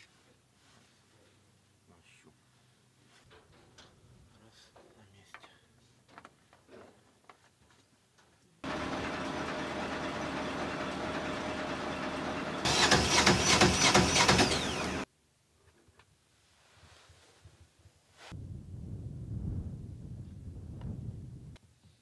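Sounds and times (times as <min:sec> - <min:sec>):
truck engine running: 0:08.6 - 0:15.0.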